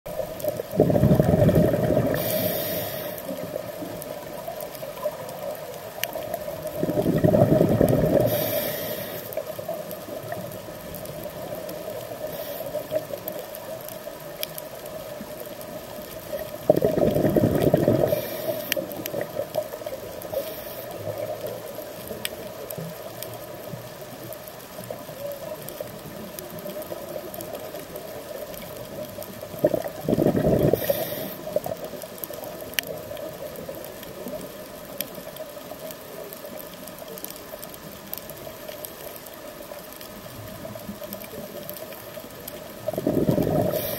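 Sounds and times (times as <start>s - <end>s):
diver exhaling bubbles: 0.6s - 3.1s, 6.7s - 8.7s, 16.6s - 19.4s, 29.6s - 31.4s, 42.8s - 43.9s.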